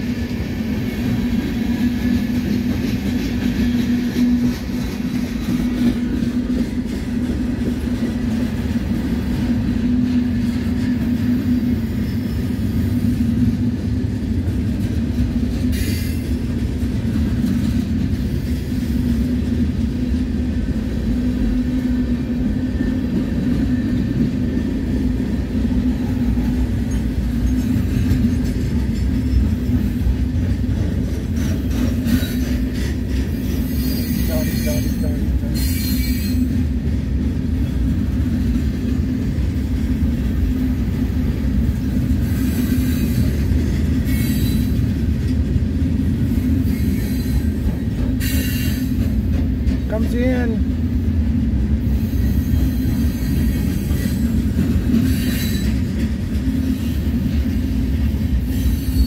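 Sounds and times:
freight train wheels rumbling on track: 0.0s - 59.0s
high-pitched wheel squeals: 58.4s - 59.0s.

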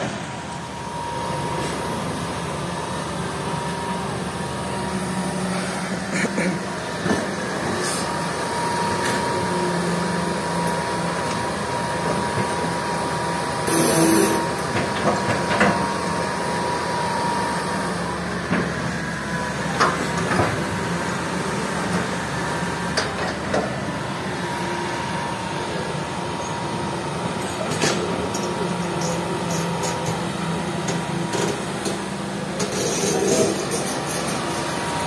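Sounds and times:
excavator diesel engine running: 0.0s - 35.0s
thin high whine: 13.6s - 14.5s.

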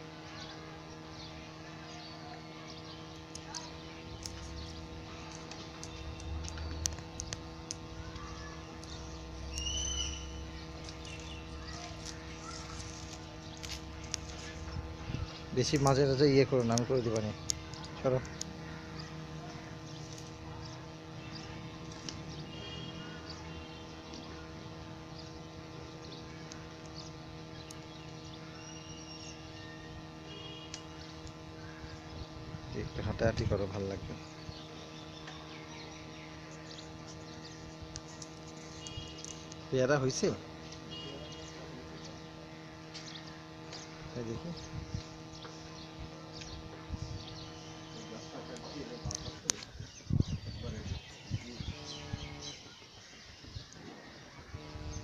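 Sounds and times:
faint high chirps: 0.2s - 32.8s
low hum and rumble: 2.5s - 33.0s
whistled bird call: 9.5s - 10.4s.

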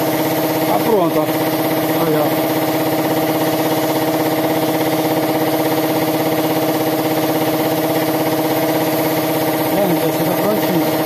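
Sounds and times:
air compressor pulsing: 0.0s - 11.0s
spray gun hissing: 0.0s - 11.0s.

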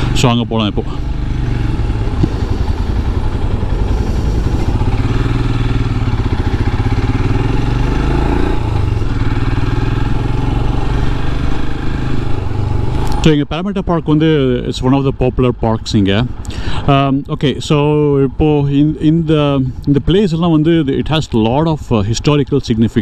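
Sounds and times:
motorcycle engine running: 0.0s - 13.3s.

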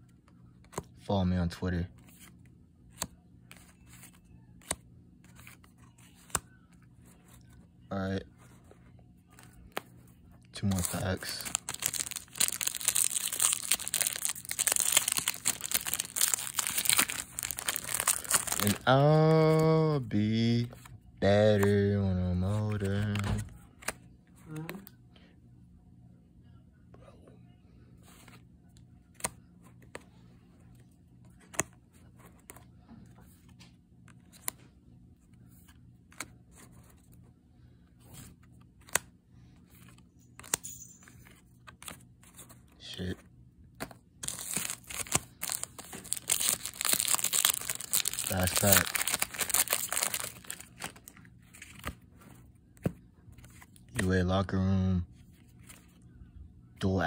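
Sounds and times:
faint steady hum: 0.0s - 57.0s
foil wrapper crinkling: 10.6s - 19.0s, 44.2s - 51.9s
cards flipped with clicks: 38.2s - 39.1s, 39.8s - 40.6s.

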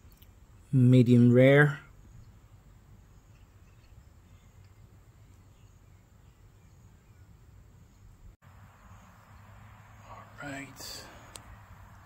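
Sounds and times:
faint low outdoor hum: 0.0s - 12.0s.

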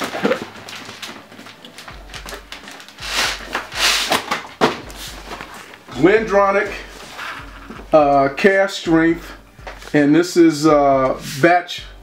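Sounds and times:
plastic packaging crinkling: 0.0s - 5.9s.

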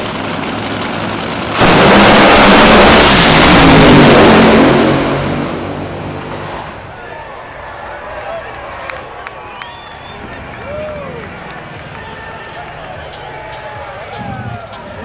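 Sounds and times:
dragster engines idling and launching: 0.0s - 7.7s.

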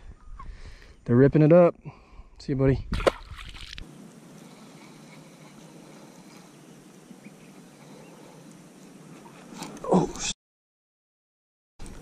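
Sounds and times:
faint outdoor background hiss: 0.1s - 10.2s
fish splashing into water: 2.9s - 3.8s.

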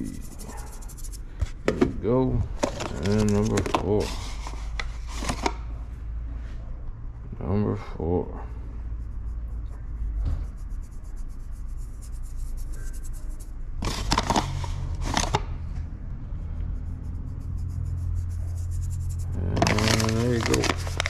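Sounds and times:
steady low hum: 0.0s - 2.6s, 5.7s - 13.8s, 15.6s - 21.0s
handling pizza dough: 19.3s - 21.0s.

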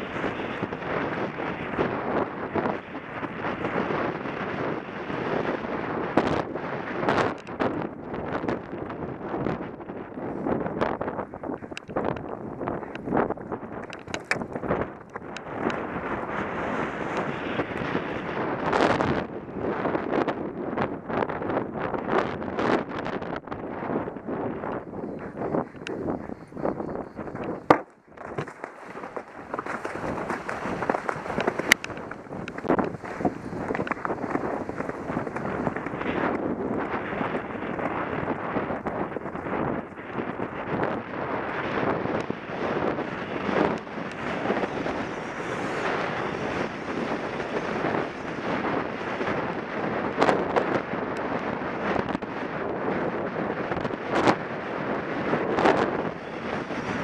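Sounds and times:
wind buffeting microphone: 0.0s - 57.0s
horse hooves galloping on dirt: 10.6s - 18.2s, 24.8s - 50.5s
horse hoofbeats on dirt: 25.0s - 40.0s.

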